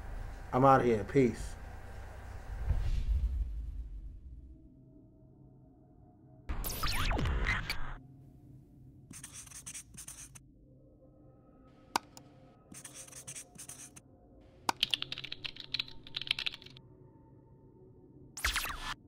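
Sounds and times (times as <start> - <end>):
marker pen scratching: 9.1 - 10.4, 12.7 - 14.0
keyboard typing: 12.0 - 14.0, 14.7 - 16.8.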